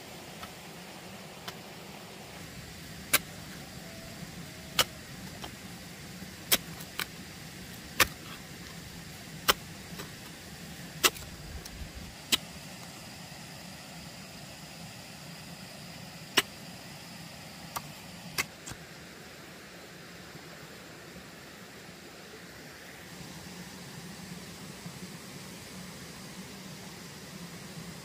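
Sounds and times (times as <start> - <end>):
background hiss: 0.0 - 28.0.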